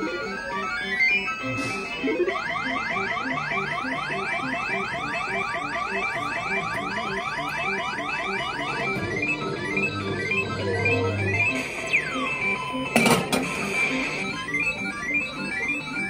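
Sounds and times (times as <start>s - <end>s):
repeating beeping tune: 0.0s - 16.0s
rising electronic sweeps: 6.0s - 12.9s.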